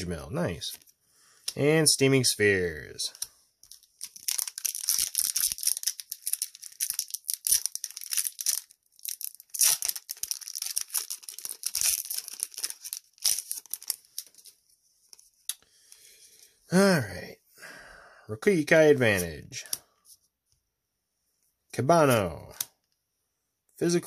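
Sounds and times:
wrapper crinkling: 3.6s - 14.6s.

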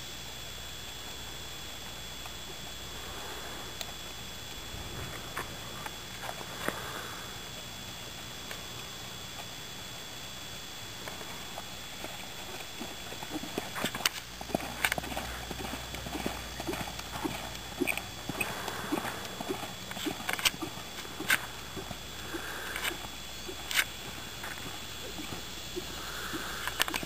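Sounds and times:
horse hoofbeats on sand: 11.9s - 27.0s.

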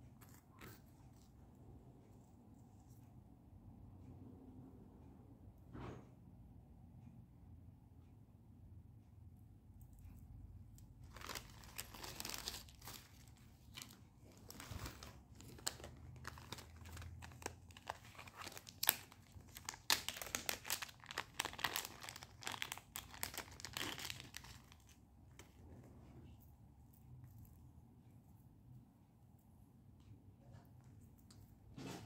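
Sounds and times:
packaging crinkling: 11.0s - 25.6s.

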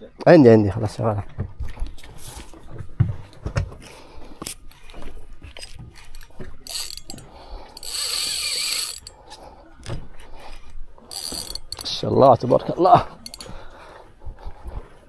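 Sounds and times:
fishing reel gears clicking: 6.6s - 9.2s, 11.1s - 12.0s, 13.2s - 13.5s
reel drag buzzing: 6.6s - 9.2s, 11.1s - 11.9s, 13.2s - 13.6s.

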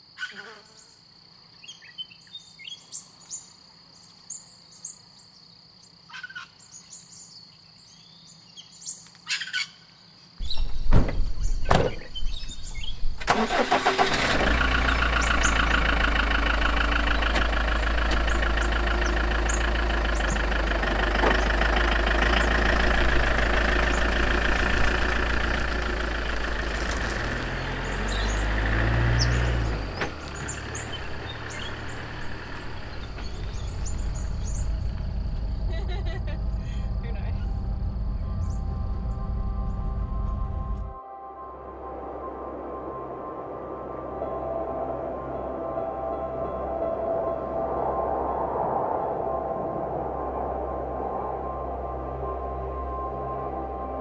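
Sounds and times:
insect drone: 0.0s - 40.8s
birds chirping: 1.6s - 14.0s, 14.8s - 40.6s
van engine starting and running: 10.4s - 41.0s.

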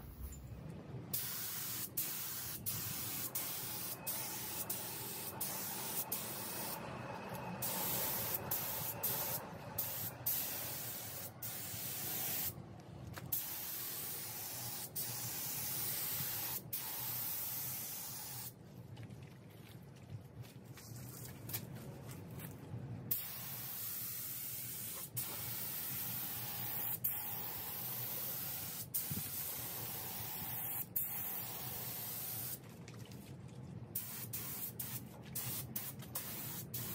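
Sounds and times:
spray gun hissing: 1.1s - 6.8s, 7.6s - 12.5s, 13.3s - 18.5s, 23.1s - 32.6s, 34.0s - 36.9s.

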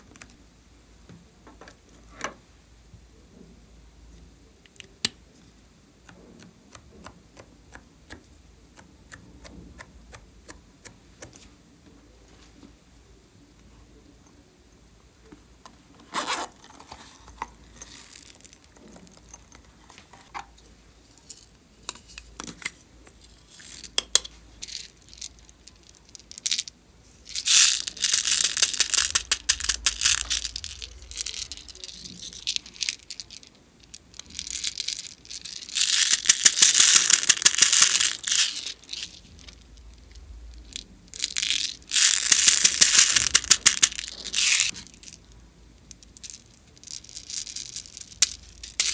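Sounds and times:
plastic beads rattling: 16.2s - 19.6s, 23.5s - 48.9s.

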